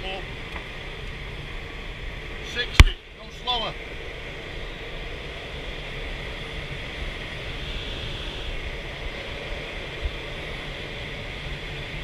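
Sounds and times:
air rushing over glider canopy: 0:00.0 - 0:12.0.

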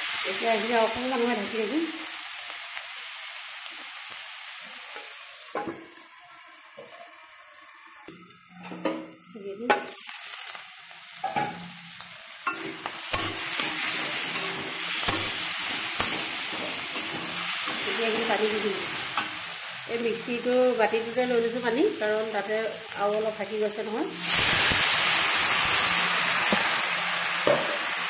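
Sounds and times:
food sizzling in oil: 0:00.0 - 0:28.0
spatula scraping pan: 0:12.4 - 0:19.5.

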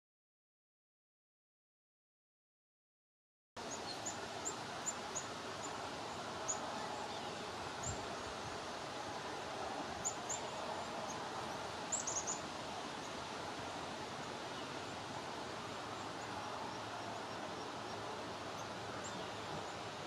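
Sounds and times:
outdoor background hiss: 0:03.6 - 0:20.0
songbird chip notes: 0:09.9 - 0:13.3.

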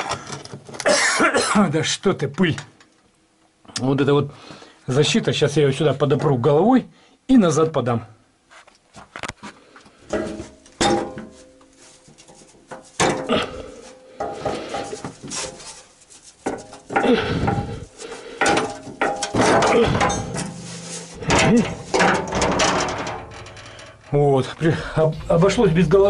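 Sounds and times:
metal guard clanking and scraping: 0:10.1 - 0:26.0.

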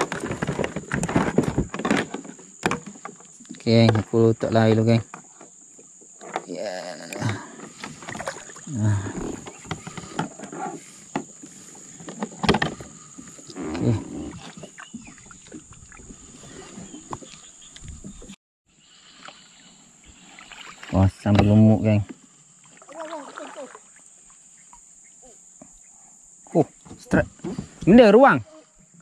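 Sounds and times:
fishing gear knocking and clattering: 0:00.0 - 0:04.1, 0:12.0 - 0:13.3
high insect buzz: 0:00.0 - 0:16.6, 0:18.8 - 0:29.0
low voice sounds: 0:06.5 - 0:07.4, 0:08.7 - 0:09.4.

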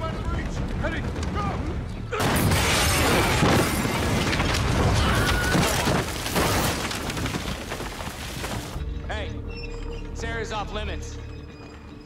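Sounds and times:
debris crashing: 0:00.0 - 0:08.8.

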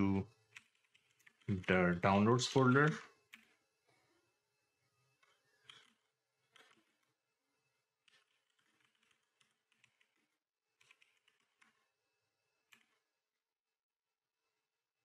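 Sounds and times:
typing on a keyboard: 0:00.5 - 0:03.6, 0:05.2 - 0:07.1, 0:08.0 - 0:11.9.

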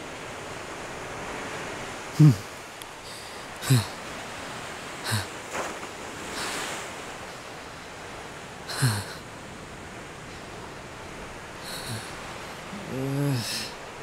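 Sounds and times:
surf: 0:00.0 - 0:14.0
man gasping and groaning: 0:02.2 - 0:02.5, 0:03.1 - 0:04.0, 0:05.0 - 0:05.3, 0:08.7 - 0:09.2, 0:11.6 - 0:13.7.

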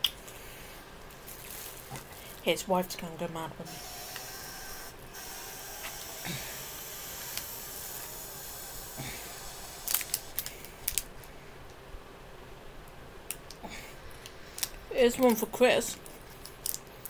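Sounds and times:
snack packaging clicks and rustling: 0:01.1 - 0:02.4, 0:09.8 - 0:11.4, 0:13.3 - 0:17.0
steady hiss: 0:03.6 - 0:17.0.

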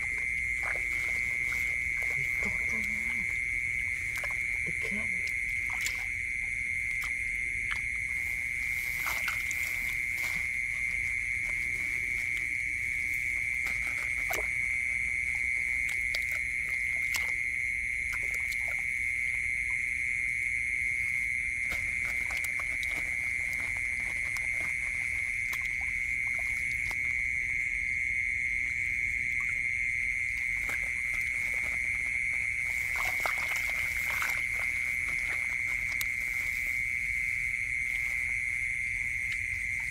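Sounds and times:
night chorus of calling animals: 0:00.0 - 0:39.9
hands splashing in muddy water: 0:06.8 - 0:17.4, 0:21.6 - 0:27.0, 0:30.4 - 0:38.4.

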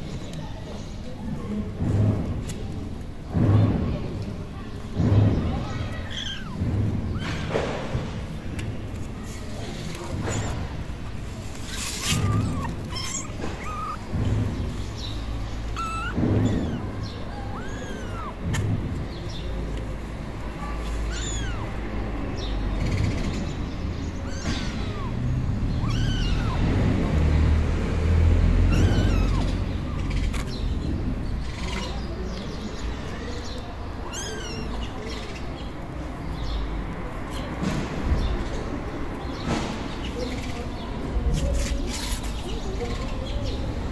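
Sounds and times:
kittens mewing: 0:05.6 - 0:08.0, 0:10.1 - 0:19.4, 0:20.4 - 0:22.4, 0:24.1 - 0:27.6, 0:28.4 - 0:30.8, 0:34.0 - 0:35.3.

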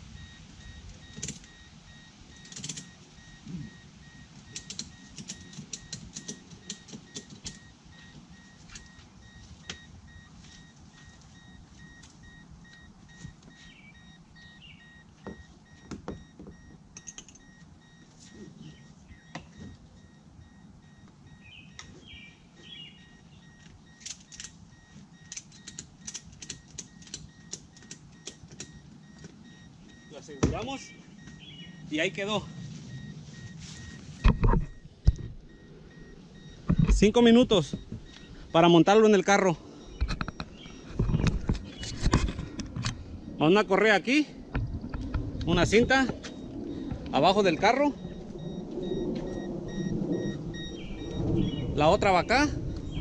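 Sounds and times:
faint high beeping tone: 0:00.1 - 0:25.9, 0:26.5 - 0:53.0
strap buckles clicking and rattling: 0:02.4 - 0:02.9, 0:25.2 - 0:29.4.

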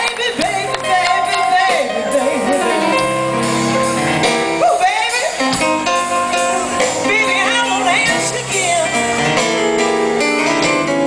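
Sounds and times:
person singing: 0:00.0 - 0:03.2
live blues band: 0:00.0 - 0:11.0.

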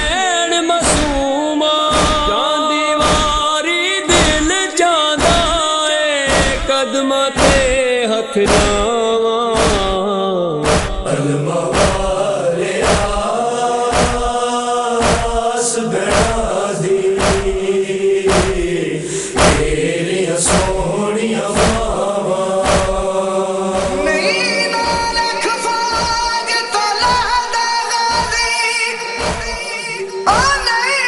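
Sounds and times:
voices chanting a slow lament: 0:00.0 - 0:31.0
rhythmic chest-beating strokes: 0:00.8 - 0:01.3, 0:01.9 - 0:02.4, 0:03.0 - 0:04.6, 0:05.2 - 0:05.7, 0:06.3 - 0:06.8, 0:07.4 - 0:07.9, 0:08.5 - 0:09.0, 0:09.6 - 0:10.0, 0:10.6 - 0:30.8
higher voice singing: 0:18.0 - 0:31.0.

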